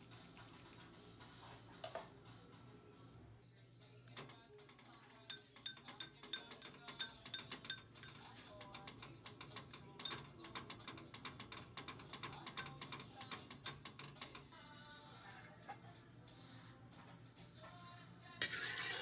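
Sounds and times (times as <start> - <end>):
fork clinking against ceramic bowl: 4.1 - 14.5.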